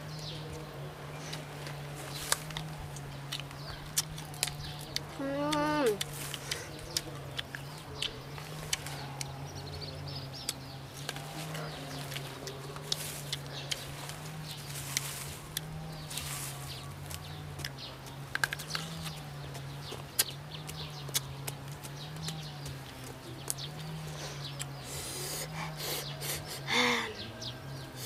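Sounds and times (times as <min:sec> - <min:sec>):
crunching and chewing mango: 0:00.1 - 0:26.7.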